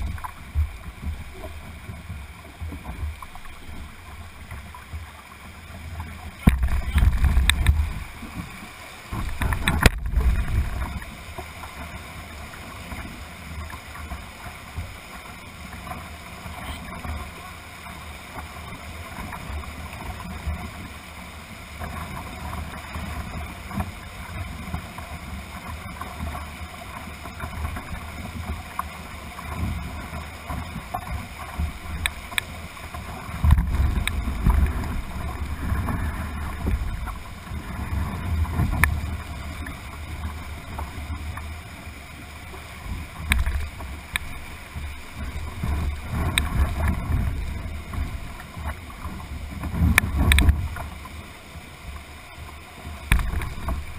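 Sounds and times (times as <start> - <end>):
low rumbling microphone buffets: 0.0 - 15.1, 27.3 - 51.3
whitewater rapids rushing: 0.0 - 53.9.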